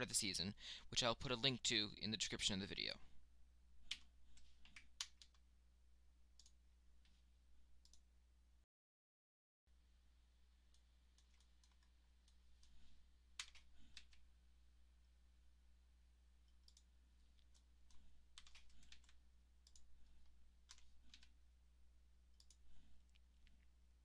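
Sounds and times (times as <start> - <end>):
keyboard and mouse clicks: 3.8 - 5.4, 6.4 - 6.6, 10.7 - 14.3, 16.4 - 21.4, 22.3 - 23.7
low steady hum: 9.7 - 24.0.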